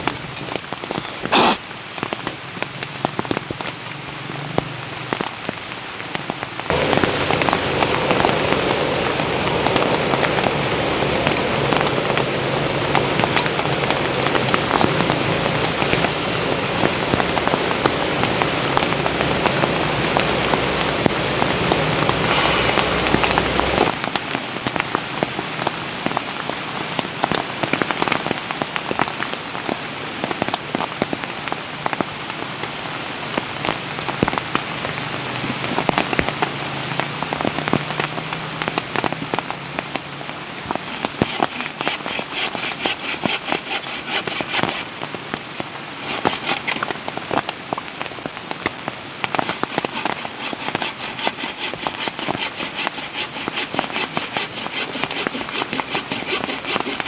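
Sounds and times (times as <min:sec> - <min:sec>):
steady rain falling: 0:00.0 - 0:57.0
rhythmic rasping strokes: 0:40.9 - 0:44.8, 0:46.0 - 0:46.8, 0:49.4 - 0:57.0.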